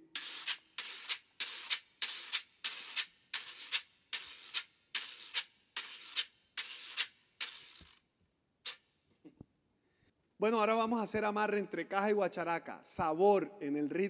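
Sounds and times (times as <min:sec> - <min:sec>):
scraper stroked with wire fork: 0:00.1 - 0:08.0.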